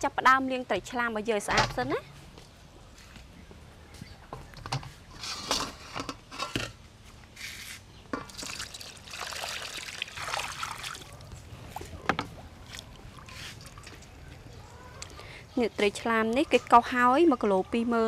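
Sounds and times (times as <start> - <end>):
water sloshing in a metal bowl: 8.2 - 14.3.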